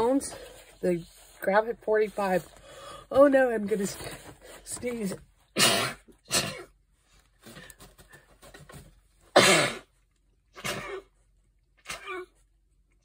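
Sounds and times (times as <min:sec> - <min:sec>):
quick breaths: 0:02.5 - 0:03.1
woman sneezing: 0:05.6 - 0:06.7, 0:10.6 - 0:11.1.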